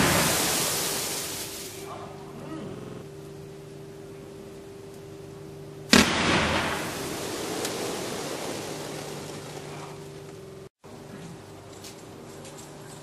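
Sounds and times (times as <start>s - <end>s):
firework bang: 0.0s - 1.4s, 5.9s - 9.2s
burning comets hissing and crackling: 0.0s - 3.5s, 5.9s - 10.7s
low hum: 0.0s - 13.0s.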